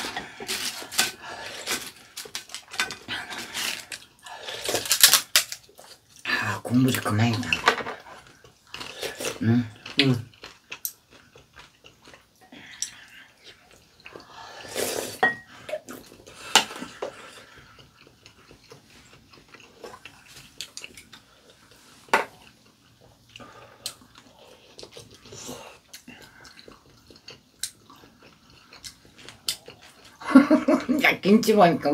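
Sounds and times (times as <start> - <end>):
chewing and slurping: 7.1 - 30.2
spoon clinking on ceramic bowls: 15.2 - 15.5.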